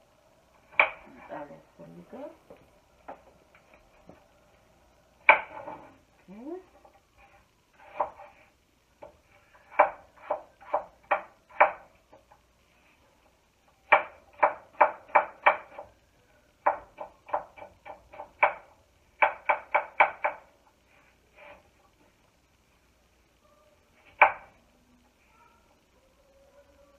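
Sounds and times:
knife chopping on wooden board: 0:07.8 - 0:08.3, 0:09.0 - 0:11.9, 0:13.9 - 0:15.9.

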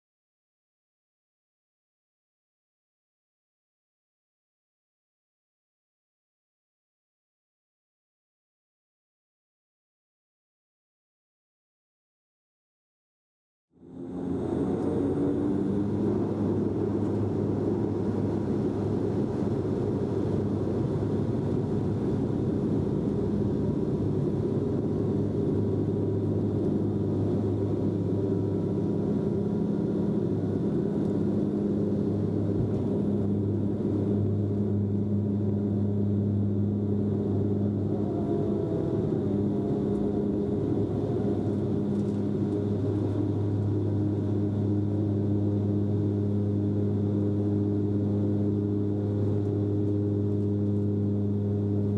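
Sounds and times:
propeller drone: 0:13.7 - 0:51.9
engine and airflow noise: 0:13.8 - 0:51.9.

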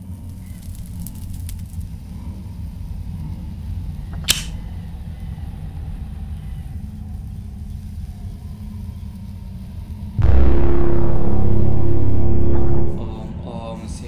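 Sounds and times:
lighter lid snapping shut: 0:04.2 - 0:04.6
horror music hit: 0:10.2 - 0:14.0
low rumbling drone: 0:10.2 - 0:14.0.

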